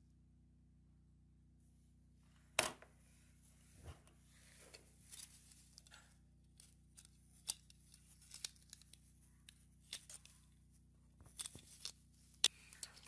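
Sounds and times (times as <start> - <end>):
faint steady hum: 0.0 - 13.0
plastic parts clicking on wood: 6.9 - 10.4, 11.3 - 13.0.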